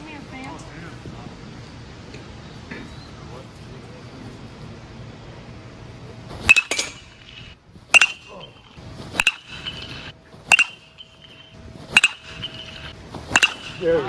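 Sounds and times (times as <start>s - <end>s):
sharp metallic pings: 6.5s - 13.9s.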